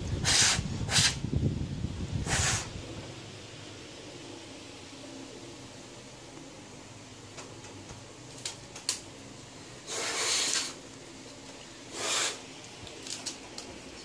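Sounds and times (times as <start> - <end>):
person blowing hard: 2.2 - 2.7.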